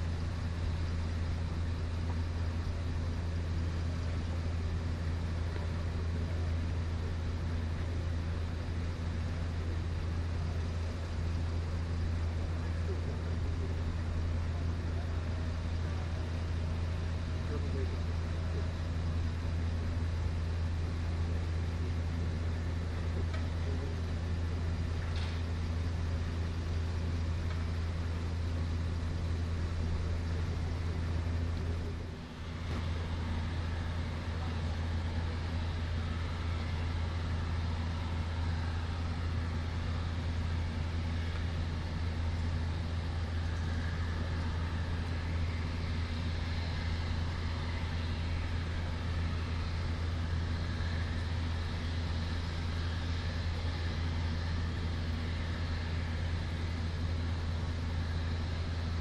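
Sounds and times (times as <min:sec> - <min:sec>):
jet engines running: 0:00.0 - 0:59.0.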